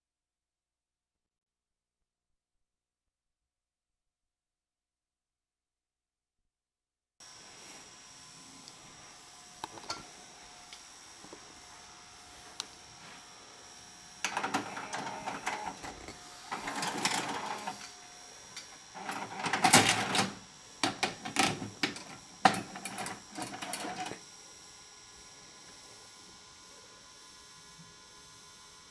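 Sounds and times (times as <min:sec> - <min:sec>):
tape mechanism whirring and clattering: 0:14.2 - 0:18.0, 0:18.6 - 0:24.2.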